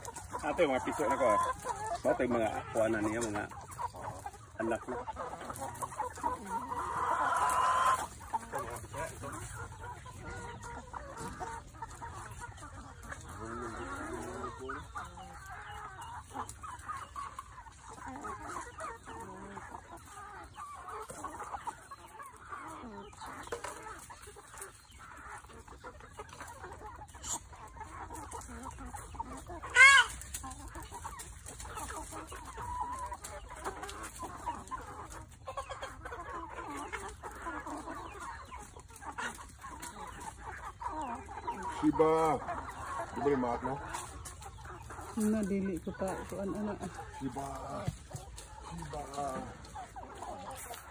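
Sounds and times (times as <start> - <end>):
chickens clucking: 0.0 - 50.9.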